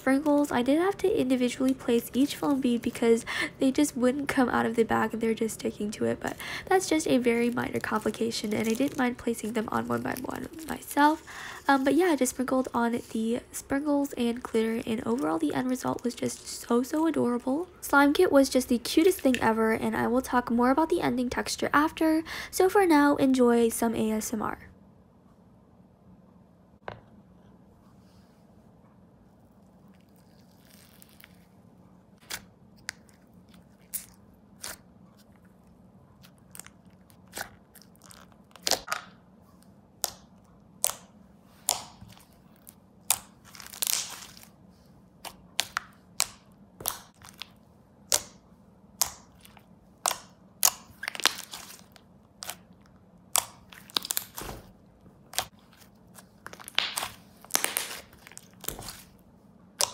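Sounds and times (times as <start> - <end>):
slime squished by hand: 49.0 - 52.7, 53.3 - 59.2.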